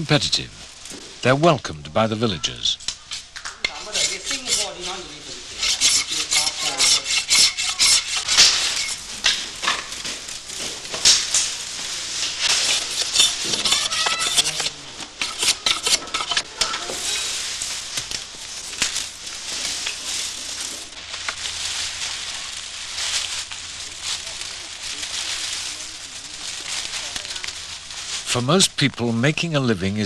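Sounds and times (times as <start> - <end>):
knife scraping bamboo: 2.8 - 21.8.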